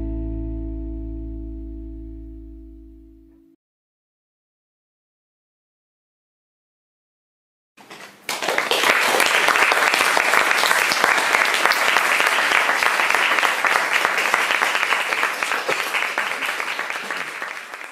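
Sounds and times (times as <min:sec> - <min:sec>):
audience applauding: 0:08.2 - 0:17.9.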